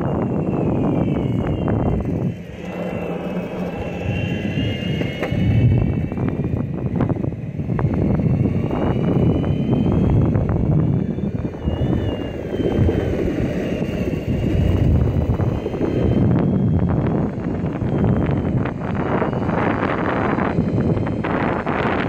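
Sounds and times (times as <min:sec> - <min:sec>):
skateboard wheels rolling on asphalt: 0:00.0 - 0:16.6
wind buffeting microphone: 0:00.0 - 0:22.0.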